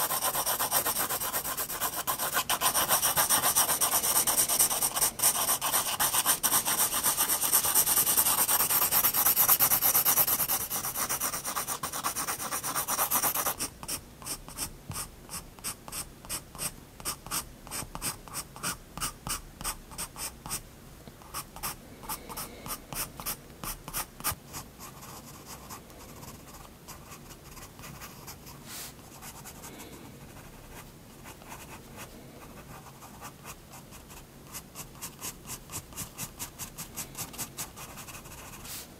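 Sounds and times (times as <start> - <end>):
pencil scratching on paper: 0.0 - 20.6.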